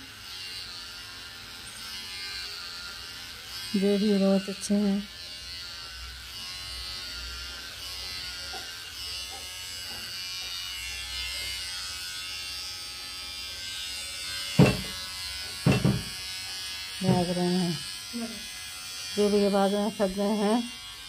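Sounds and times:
electric hair clippers buzzing: 0:00.0 - 0:21.0
loud knocks: 0:14.6 - 0:15.0, 0:15.6 - 0:16.1.

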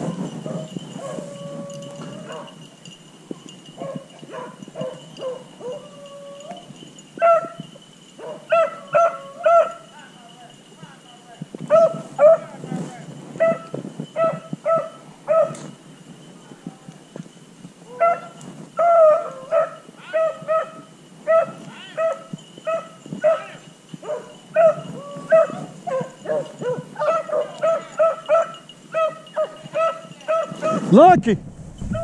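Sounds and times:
dogs barking: 0:00.0 - 0:02.6, 0:03.8 - 0:09.9, 0:11.7 - 0:12.5, 0:13.4 - 0:15.7, 0:18.0 - 0:30.9.

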